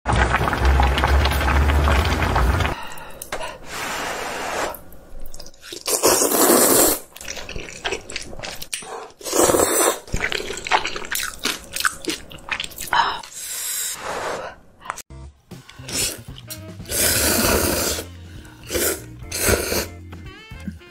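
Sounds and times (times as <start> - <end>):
wet chewing: 5.2 - 13.4, 15.7 - 16.7
person slurping noodles: 5.4 - 14.6, 15.8 - 20.0.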